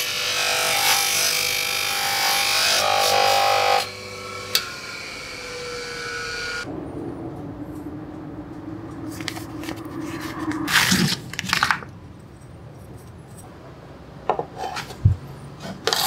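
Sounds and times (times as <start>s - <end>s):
bench grinder whine: 0.0s - 6.7s
steady low hum: 5.8s - 14.2s
plastic sleeve crinkling: 9.1s - 11.9s.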